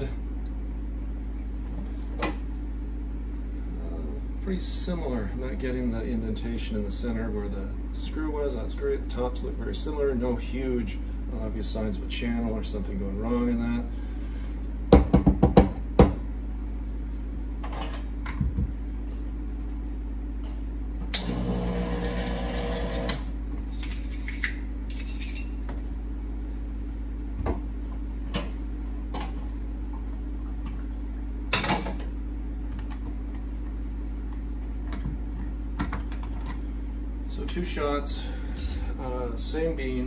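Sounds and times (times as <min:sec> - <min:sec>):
portafilter knocking on knock box: 0:14.9 - 0:16.2
espresso machine pump running: 0:21.1 - 0:23.4.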